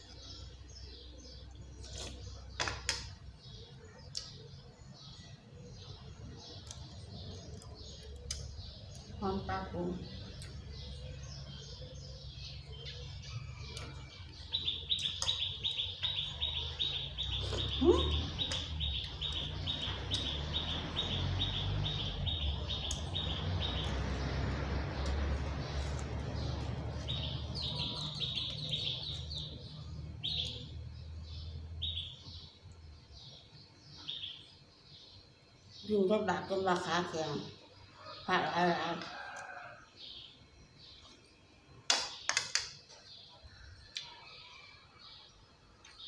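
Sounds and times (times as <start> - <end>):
small birds chirping: 0.0 - 46.0
bird chirping rapidly: 10.2 - 32.3.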